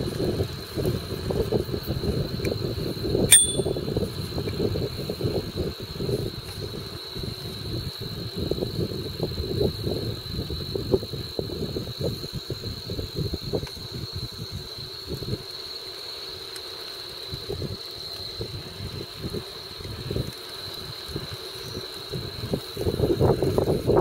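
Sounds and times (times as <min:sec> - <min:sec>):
wind buffeting microphone: 0:22.3 - 0:24.0.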